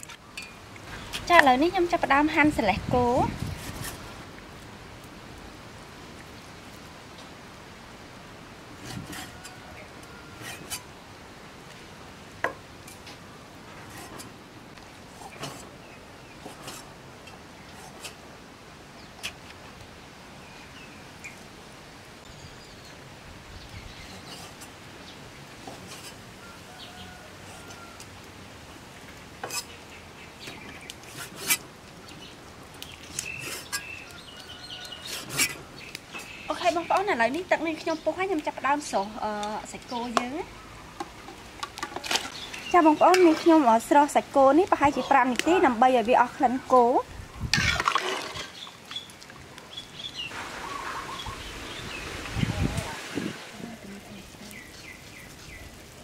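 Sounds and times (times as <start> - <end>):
birds chirping: 32.0 - 47.5, 48.4 - 55.8.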